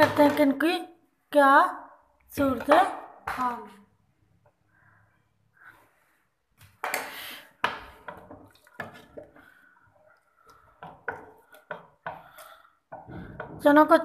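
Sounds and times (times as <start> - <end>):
spoon stirring wet sloshing: 7.0 - 13.5
spoon knocking and scraping pot: 7.6 - 9.5, 10.4 - 13.7.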